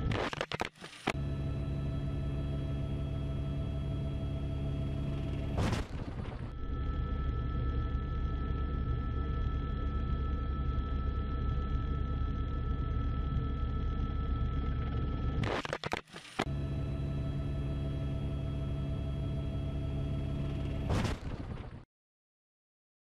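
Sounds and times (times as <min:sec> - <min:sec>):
aircraft engine drone in cockpit: 0:00.8 - 0:21.5.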